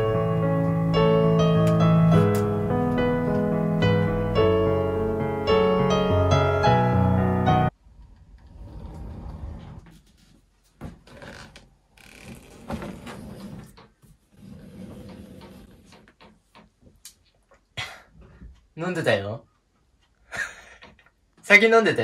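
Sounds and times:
piano music: 0.0 - 7.8.

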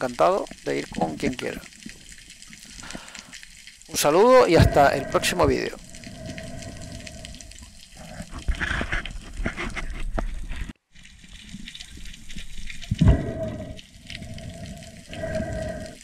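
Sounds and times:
crackles and clicks: 0.0 - 16.0
water rushing and bubbling: 0.0 - 16.0.

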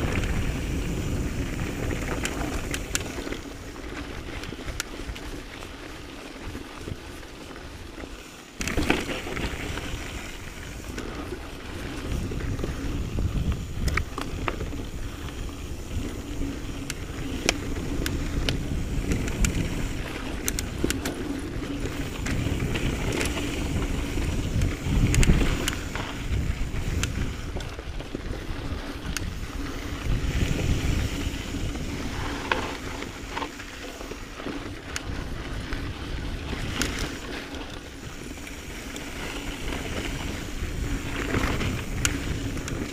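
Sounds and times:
wind on microphone: 0.0 - 5.4, 8.8 - 42.9
bike clicks and rattles: 0.0 - 42.9
bike tyres rumbling on trail: 0.0 - 42.9
bike jolt: 8.6 - 27.7.

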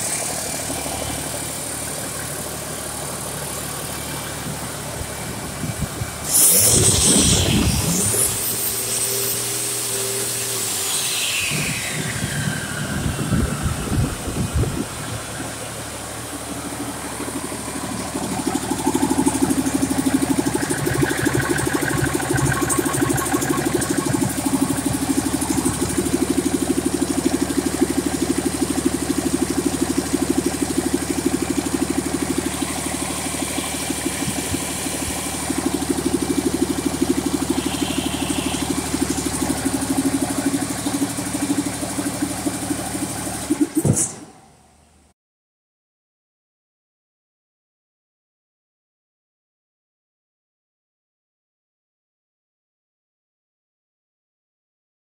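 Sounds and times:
diesel engine idling: 0.0 - 6.3, 11.7 - 43.8
high whine falling in pitch: 4.2 - 42.5.

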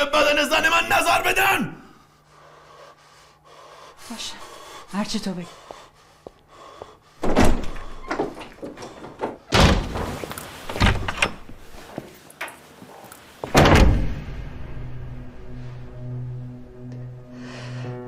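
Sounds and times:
doors slamming shut: 7.2 - 11.5, 13.4 - 14.6.

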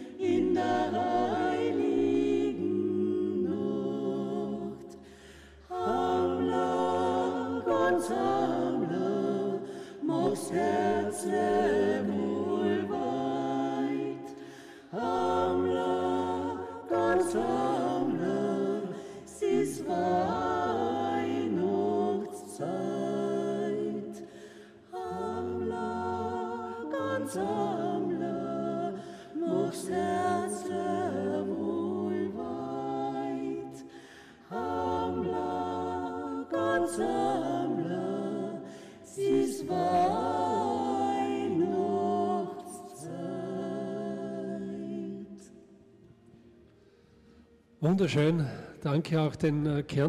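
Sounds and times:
vocal group singing a cappella: 0.0 - 50.0.

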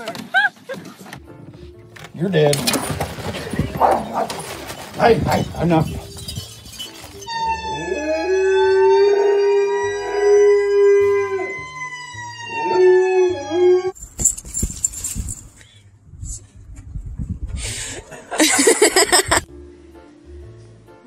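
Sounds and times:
dog howling: 7.4 - 11.6.

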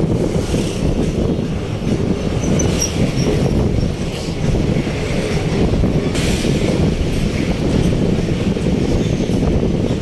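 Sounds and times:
road noise: 0.0 - 10.0.

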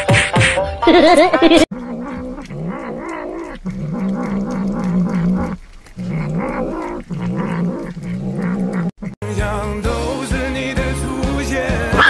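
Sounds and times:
cat vocalizing: 1.6 - 9.3.

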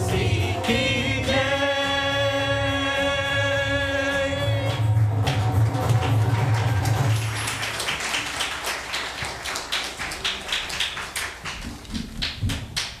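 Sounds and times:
crowd applauding: 4.7 - 13.0.

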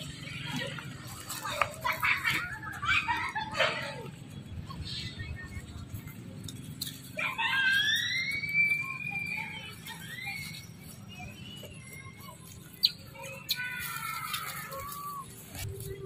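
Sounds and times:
infant monkeys crying: 7.2 - 10.8.

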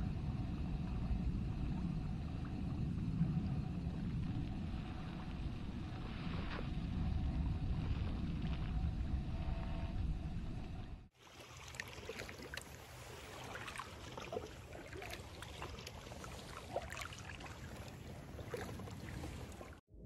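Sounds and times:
low wind rumble: 0.0 - 11.1
water splashing and lapping: 11.1 - 19.8.

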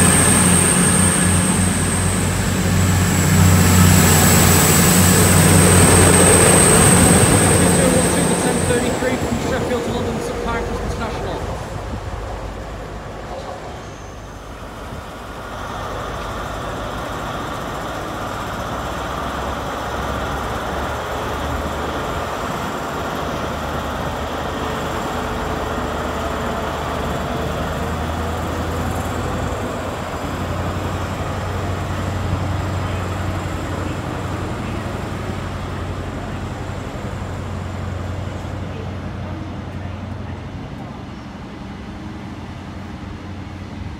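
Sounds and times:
diesel engine drone: 0.0 - 43.9.

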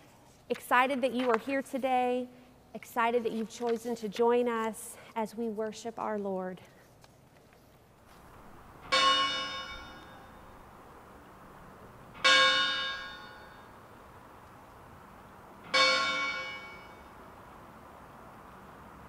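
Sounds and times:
church bell tolling: 8.8 - 10.6, 12.2 - 13.8, 15.7 - 17.2.

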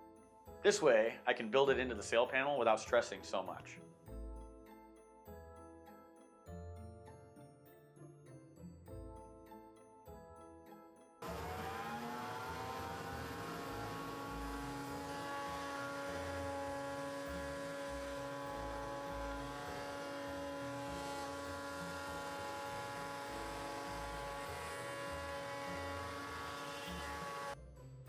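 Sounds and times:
power tool motor whining: 11.2 - 27.6.

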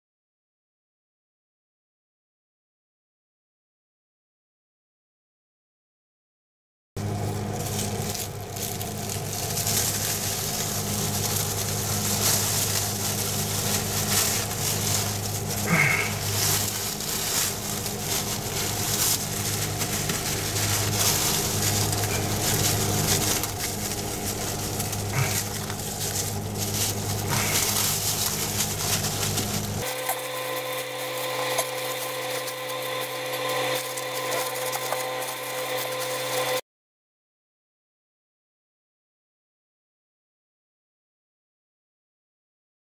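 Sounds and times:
small electric motor humming: 7.0 - 36.6.

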